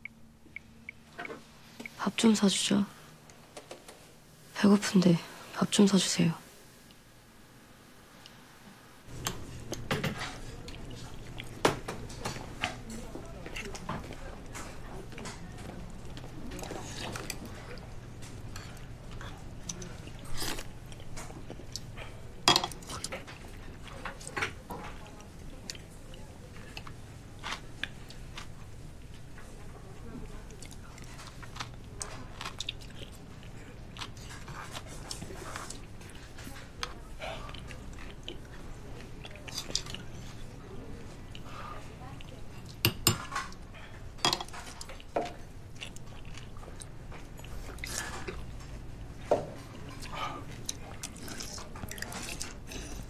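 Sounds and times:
chewing: 0:00.0 - 0:02.0, 0:09.1 - 0:53.0
low steady background noise: 0:00.0 - 0:53.0
metal spoons clinking on bowls: 0:22.5 - 0:22.9, 0:42.8 - 0:43.5, 0:44.2 - 0:45.3.

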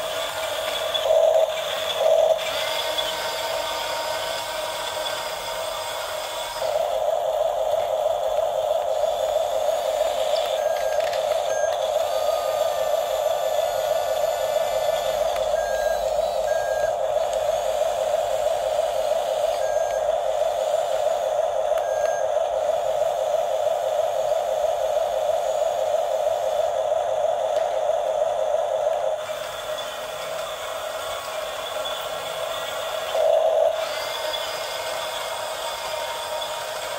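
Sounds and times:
toy electric motors whirring: 0:00.0 - 0:22.1, 0:29.2 - 0:36.9
high beeps: 0:10.4 - 0:12.7, 0:15.4 - 0:17.0, 0:21.8 - 0:22.4.

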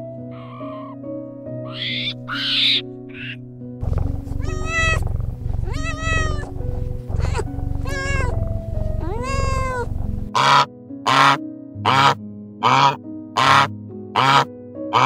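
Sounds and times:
background music: 0:00.0 - 0:15.0
cat meowing: 0:01.7 - 0:10.6
harsh bird calls: 0:01.7 - 0:14.4.

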